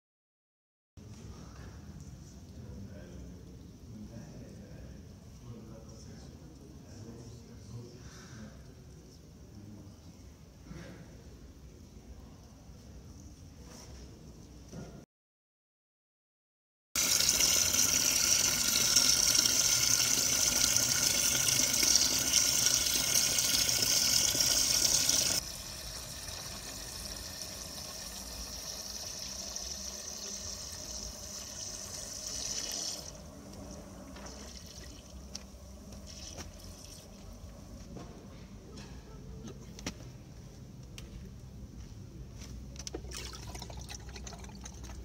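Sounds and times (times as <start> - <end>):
water running: 17.0 - 37.4, 42.8 - 45.0.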